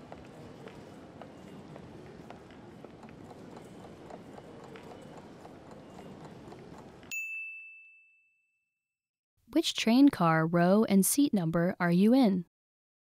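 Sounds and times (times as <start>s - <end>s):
faint footsteps clicking: 0.0s - 7.1s
bright ding chime: 7.1s - 8.6s.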